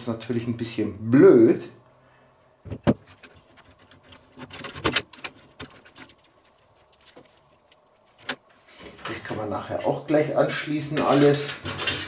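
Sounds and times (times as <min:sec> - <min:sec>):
cables being handled: 0:02.7 - 0:10.0, 0:10.8 - 0:12.0.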